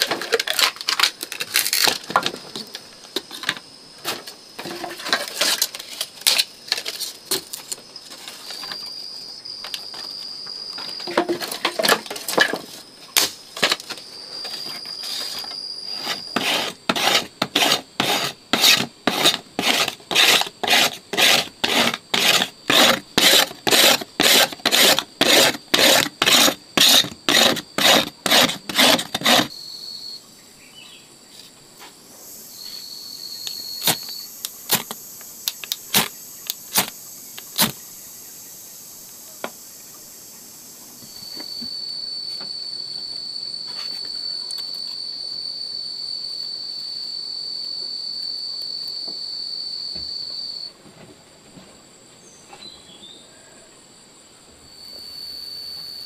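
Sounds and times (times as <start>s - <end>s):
cricket trilling: 0.0s - 31.5s, 32.2s - 50.7s, 52.2s - 56.0s
blade scraping wooden stick: 14.4s - 29.5s.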